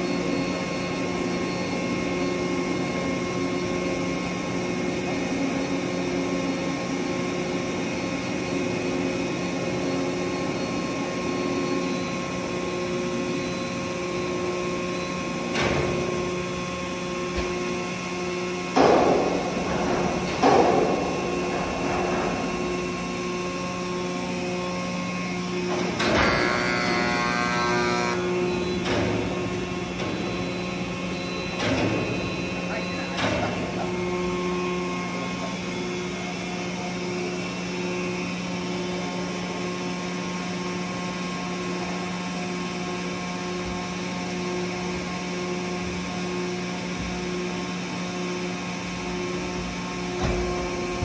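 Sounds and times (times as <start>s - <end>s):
hydraulic power unit humming: 0.0s - 51.0s
sharp metallic knocks and clanks: 18.7s - 23.0s.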